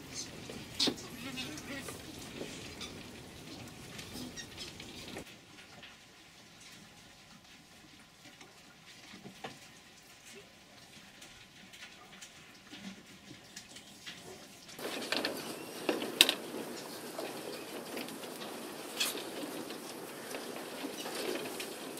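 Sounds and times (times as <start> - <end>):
animal moving on wire mesh: 0.0 - 6.9, 10.9 - 21.9
rustling and clicks: 0.0 - 9.8, 11.0 - 21.9.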